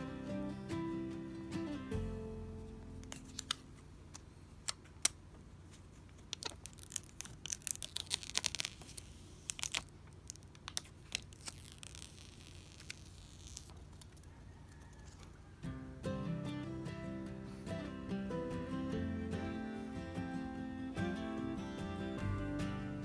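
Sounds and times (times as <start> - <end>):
plastic film crackling: 3.0 - 14.3
protective film peeling: 3.0 - 14.3.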